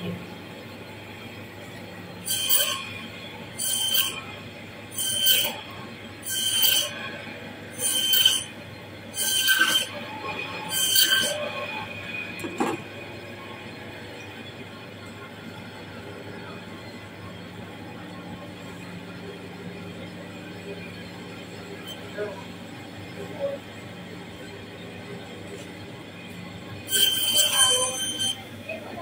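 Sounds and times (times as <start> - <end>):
band saw cutting frozen fish: 2.2 - 11.6, 26.8 - 29.0.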